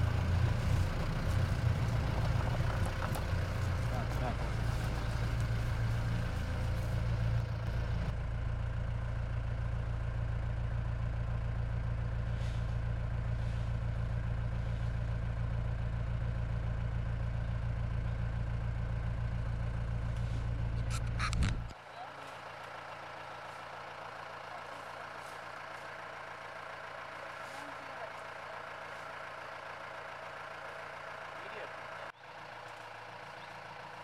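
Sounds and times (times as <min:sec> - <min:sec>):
engine idling: 0:00.0 - 0:34.0.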